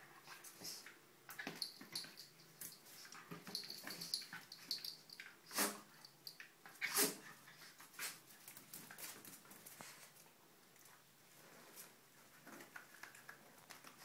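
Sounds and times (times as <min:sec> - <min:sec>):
paws and claws scrabbling on tile: 0:06.3 - 0:14.0.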